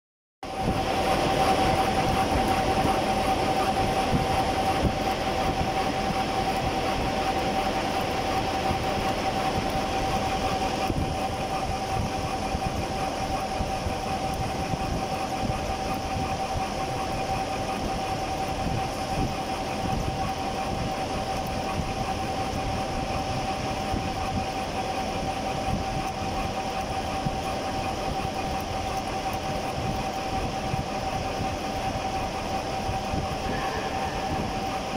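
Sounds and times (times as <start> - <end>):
milling cutter whine: 0.4 - 34.9
rough machining noise: 26.1 - 34.9.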